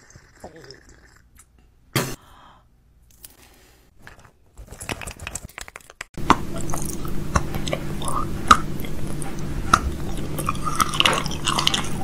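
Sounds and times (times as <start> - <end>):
crinkly clicks and crackles: 4.1 - 6.2
steady low hum: 6.2 - 12.0.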